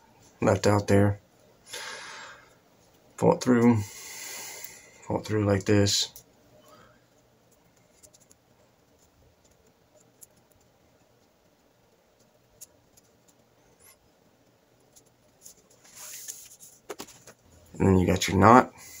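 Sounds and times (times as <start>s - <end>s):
rustle of cord being pulled: 15.0s - 17.4s.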